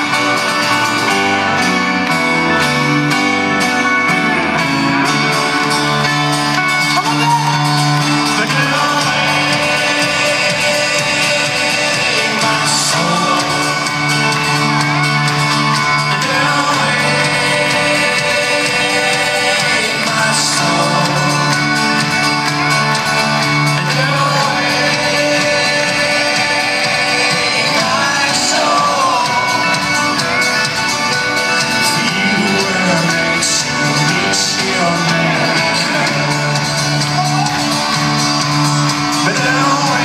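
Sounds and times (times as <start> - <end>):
live rock band playing: 0.0 - 40.0
person singing: 0.0 - 40.0
crowd shouting: 5.4 - 21.3, 21.9 - 31.1, 34.8 - 40.0.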